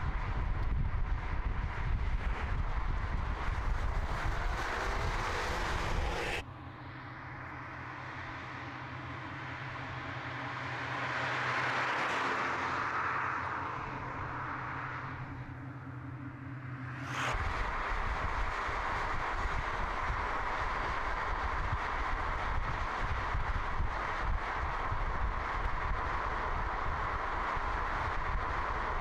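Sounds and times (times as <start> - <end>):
wind and road rush: 0.0 - 29.0
car driving by: 1.0 - 23.2.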